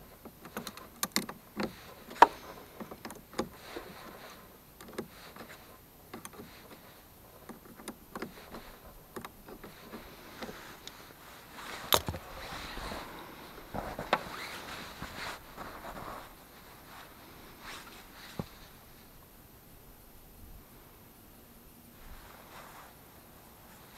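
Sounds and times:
light clicks and rustling: 0.0s - 19.0s.

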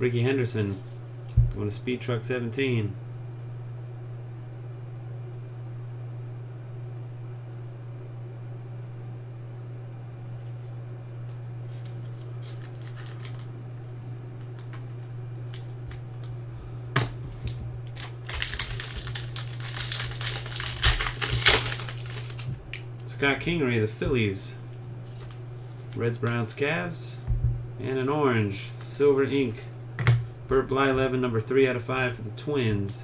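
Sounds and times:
steady low hum: 0.0s - 33.0s
plastic wrapper crinkling: 11.7s - 16.3s, 17.4s - 23.0s.

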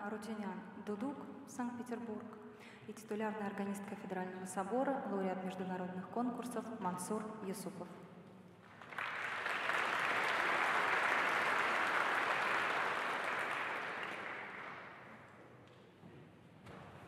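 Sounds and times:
audience applauding: 8.6s - 15.3s.

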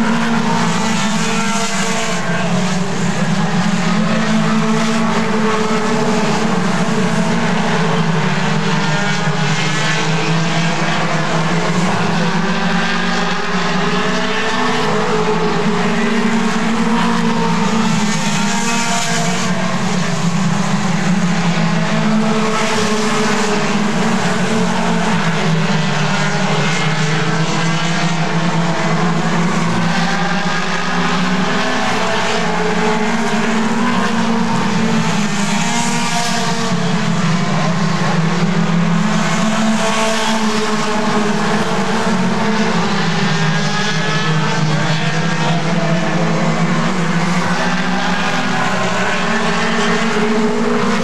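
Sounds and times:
race car engines: 0.0s - 51.0s.

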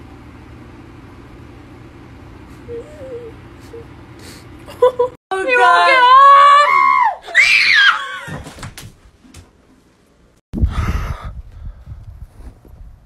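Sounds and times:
high-pitched scream: 5.4s - 8.3s.

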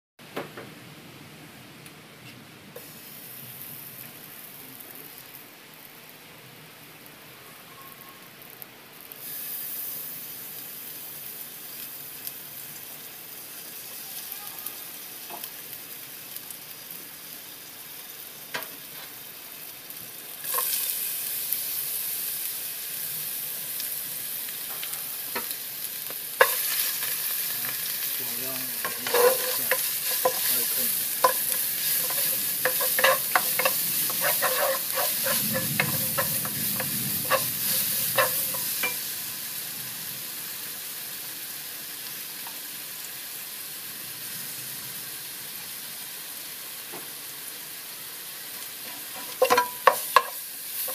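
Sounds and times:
oil sizzling in a wok: 2.8s - 50.9s
wooden spatula scraping a pan: 26.4s - 39.0s, 48.9s - 50.9s.

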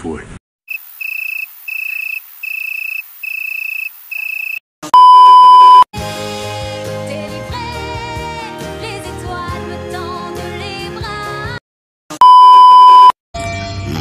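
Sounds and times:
high electronic beeps: 0.7s - 5.8s, 12.2s - 13.1s
loud test-tone beep: 1.0s - 5.9s, 12.2s - 13.2s
music with singing: 6.0s - 11.6s.

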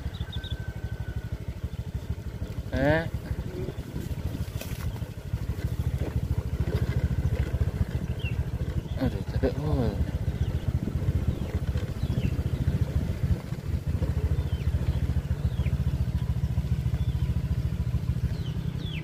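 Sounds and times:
small motorcycle engine running: 0.0s - 19.0s
bird whistling: 0.1s - 0.7s, 8.1s - 8.4s, 18.3s - 19.0s.

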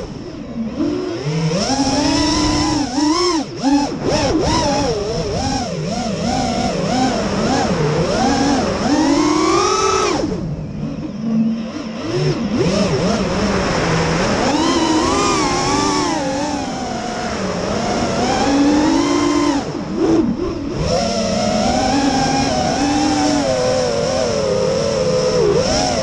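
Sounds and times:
drone propellers whining: 0.0s - 26.0s.

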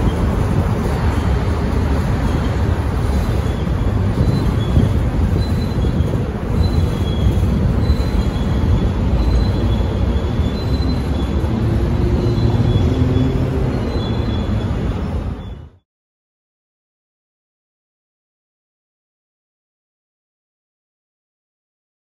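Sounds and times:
train wheels rumbling on rails: 0.0s - 15.6s
high wheel squeals: 0.0s - 15.8s.

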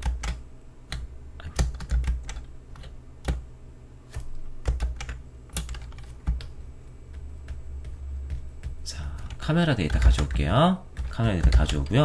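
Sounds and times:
computer keyboard keys clicking: 0.0s - 3.4s, 4.2s - 12.0s.

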